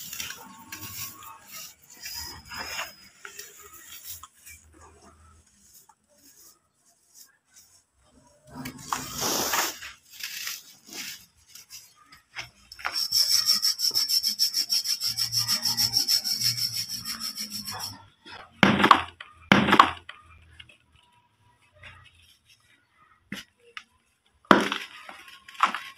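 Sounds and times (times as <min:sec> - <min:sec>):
dirt balls crumbling by hand: 0:24.5 - 0:25.9.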